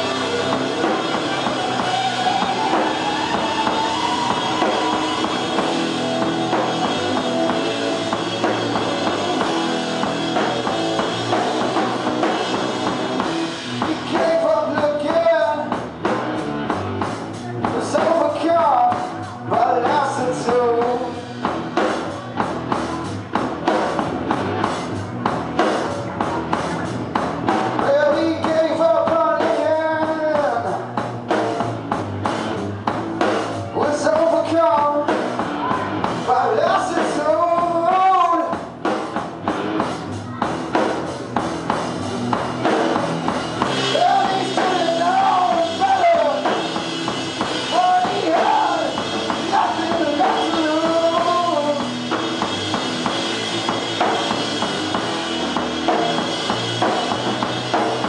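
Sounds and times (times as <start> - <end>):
distorted electric guitar: 0.0 - 58.0
drum kit: 0.0 - 58.0
man singing: 13.8 - 15.8, 17.6 - 21.3, 27.8 - 31.0, 33.7 - 35.3, 36.2 - 38.6, 43.8 - 46.8, 47.6 - 52.0.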